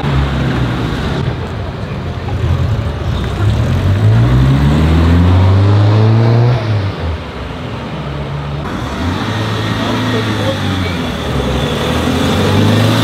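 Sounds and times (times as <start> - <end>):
car engine revving past: 3.2 - 7.1.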